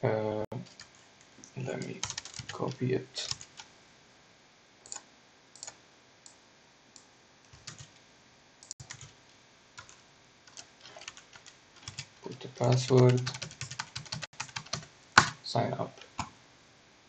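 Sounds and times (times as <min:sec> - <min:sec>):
faint steady hiss: 0:00.0 - 0:17.0
computer keys and mouse clicks: 0:00.7 - 0:02.7, 0:04.8 - 0:05.0, 0:05.6 - 0:06.4, 0:09.8 - 0:15.4.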